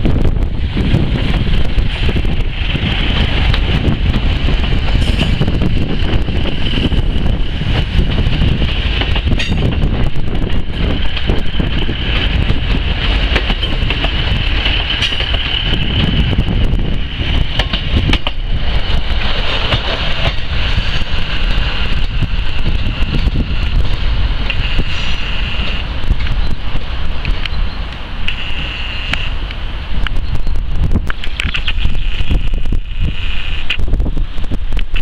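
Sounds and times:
diesel train rumbling past: 0:00.0 - 0:35.0
wheels clicking over rails: 0:01.2 - 0:24.6
high-pitched squeal: 0:24.5 - 0:26.6, 0:27.5 - 0:29.4.

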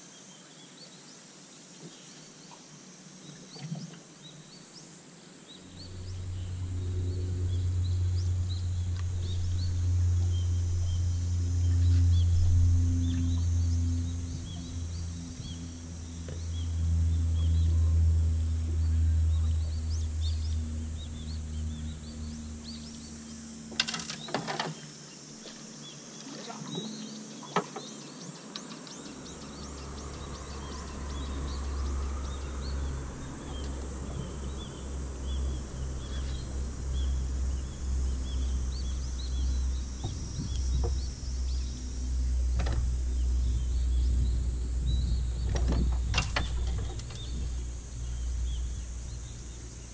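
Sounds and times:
low rumble: 0:05.5 - 0:24.3, 0:28.9 - 0:49.9
small birds chirping: 0:18.6 - 0:49.9.

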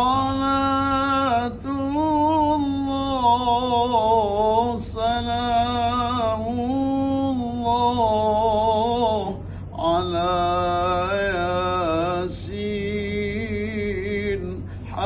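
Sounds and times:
man singing unaccompanied: 0:00.0 - 0:15.0
quick breaths: 0:09.4 - 0:09.8, 0:14.6 - 0:14.9.

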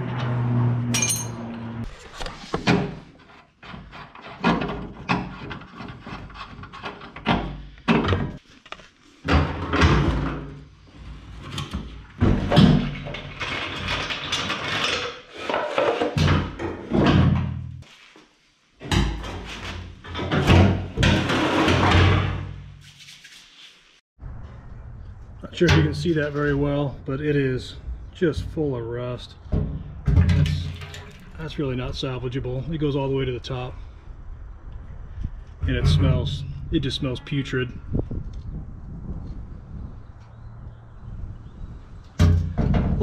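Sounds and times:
hand tools and metal parts clunking: 0:00.1 - 0:17.9, 0:18.8 - 0:22.8, 0:27.8 - 0:31.7.

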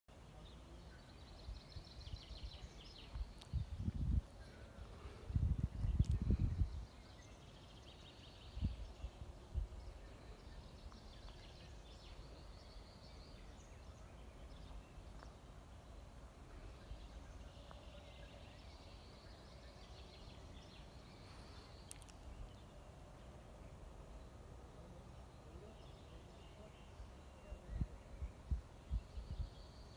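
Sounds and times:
distant birds chirping: 0:00.1 - 0:29.9.

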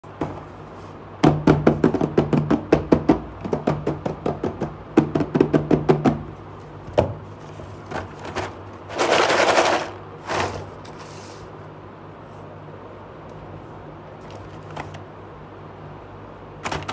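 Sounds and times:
rapid tapping on cardboard box: 0:01.2 - 0:07.2
packaging sliding and rustling: 0:07.4 - 0:11.5.

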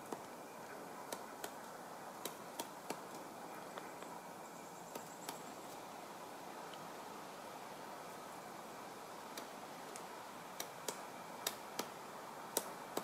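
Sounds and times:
woodpecker pecking dead tree: 0:00.0 - 0:04.1, 0:09.3 - 0:13.0.

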